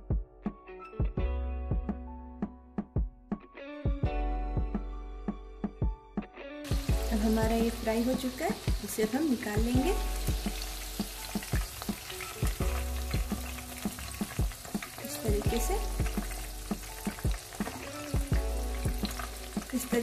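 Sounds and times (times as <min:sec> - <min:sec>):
chicken sizzling in hot oil: 0:06.7 - 0:20.0.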